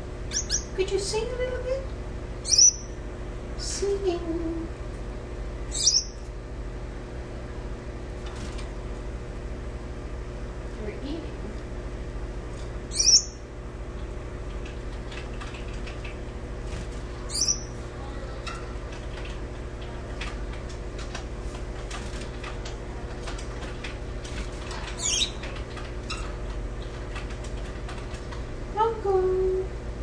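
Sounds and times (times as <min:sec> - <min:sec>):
finch calls: 0:00.3 - 0:00.8, 0:02.4 - 0:03.0, 0:05.7 - 0:06.2, 0:12.9 - 0:13.4, 0:17.3 - 0:17.8, 0:25.0 - 0:25.4.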